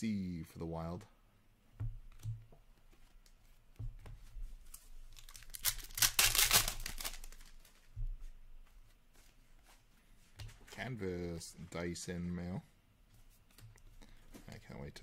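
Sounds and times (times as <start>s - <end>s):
foil pack tearing and crinkling: 5.1s - 7.6s.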